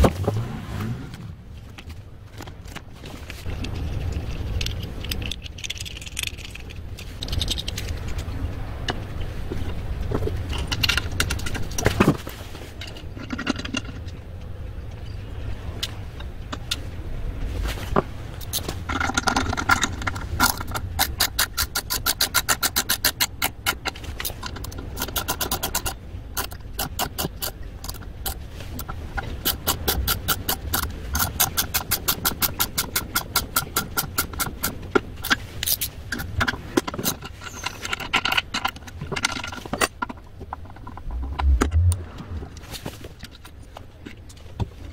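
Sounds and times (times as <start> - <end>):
fast even tool clicking: 18.4 - 28.4, 29.4 - 37.2.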